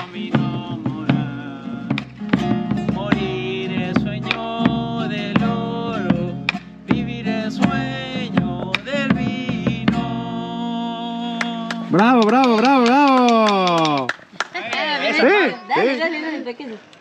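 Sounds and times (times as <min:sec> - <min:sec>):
drum beaten with sticks: 0:00.0 - 0:10.4
acoustic guitar strummed: 0:00.0 - 0:12.4.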